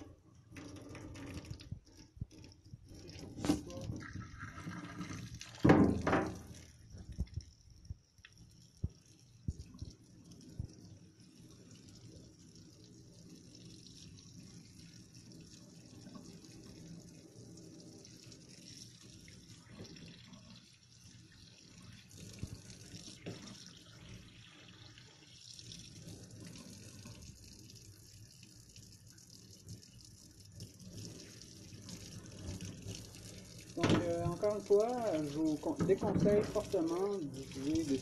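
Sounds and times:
tap water splashing into sink: 0.0s - 10.0s, 21.4s - 24.1s, 29.6s - 38.0s.

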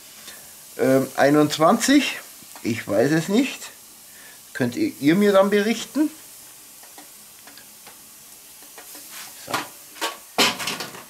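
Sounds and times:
meat sizzling on a grill: 0.0s - 11.0s
metal tray and tongs clattering: 8.8s - 11.0s.

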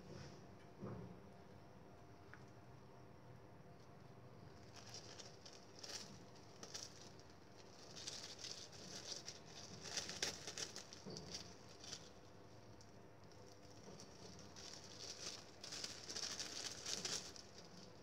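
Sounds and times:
plastic crinkling and rustling: 4.4s - 18.0s.

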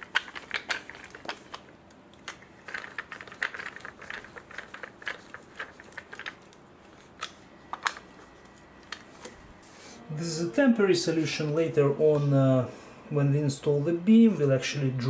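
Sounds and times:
small screws clicking and rattling: 0.0s - 8.0s.

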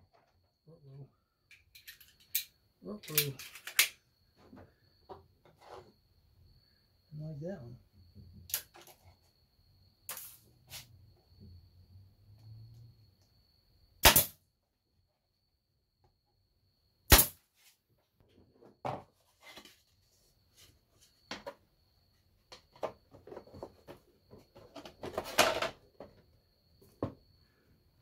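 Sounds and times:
nail gun shots into wood: 14.0s - 14.4s, 17.1s - 17.4s
wooden boards knocking and clattering: 18.6s - 19.7s, 21.2s - 21.6s, 22.5s - 26.2s.

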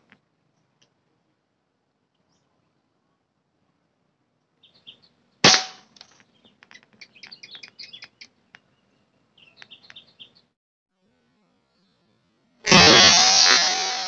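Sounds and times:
small birds chirping: 2.1s - 3.1s, 4.4s - 5.4s, 6.0s - 10.6s
air rifle shot: 5.4s - 5.9s.

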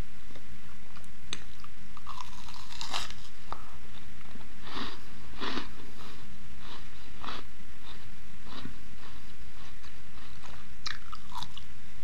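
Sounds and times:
crisp pastry crunching when chewed: 1.3s - 3.6s, 4.7s - 11.6s.

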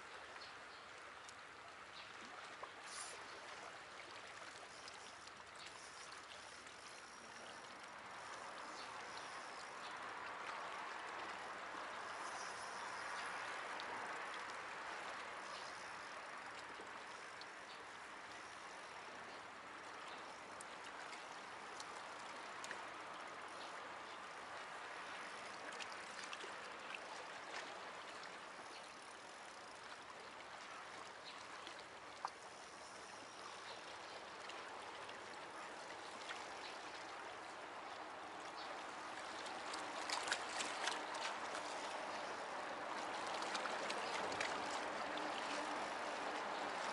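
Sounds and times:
faint water drips: 0.0s - 46.9s
small waves lapping against rocks: 0.0s - 46.9s.

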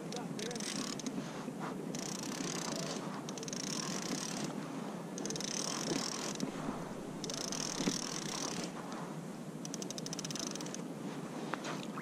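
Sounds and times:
fishing reel whirring and clicking: 0.4s - 1.1s, 1.9s - 4.5s, 5.2s - 6.5s, 7.2s - 8.6s, 9.6s - 10.8s.

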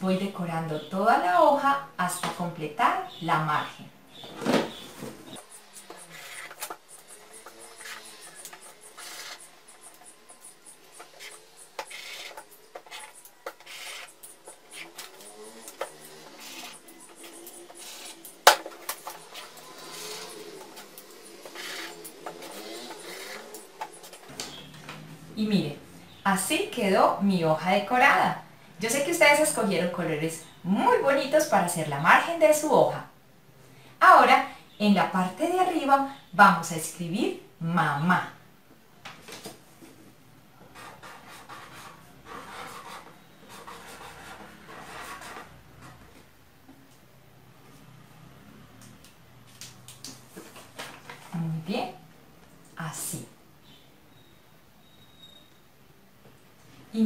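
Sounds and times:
colored pencil scratching on paper: 5.4s - 24.3s, 40.7s - 45.9s
pencil tapping dots: 5.4s - 24.4s.

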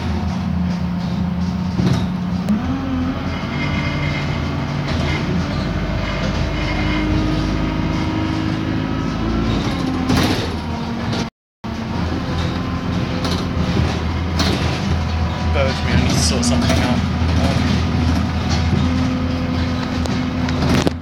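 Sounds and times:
bus engine drone: 0.0s - 21.0s
road noise with knocks: 0.0s - 21.0s.

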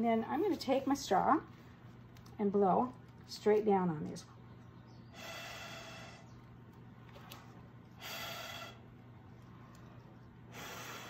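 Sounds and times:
breath blown through straw: 5.2s - 6.3s, 8.0s - 8.9s, 10.5s - 11.0s.

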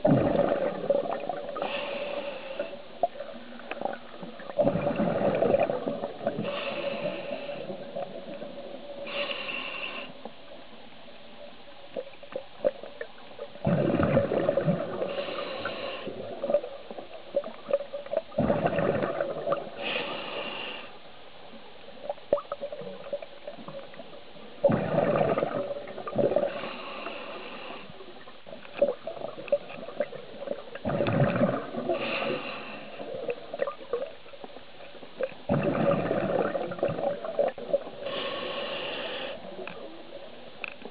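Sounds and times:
exhaled bubbles gurgling: 0.0s - 9.8s, 11.9s - 20.6s, 22.0s - 40.9s
regulator inhale hiss: 1.5s - 3.0s, 6.3s - 8.1s, 9.0s - 10.3s, 14.9s - 16.3s, 19.7s - 21.1s, 26.4s - 28.1s, 31.9s - 33.4s, 38.0s - 39.8s.

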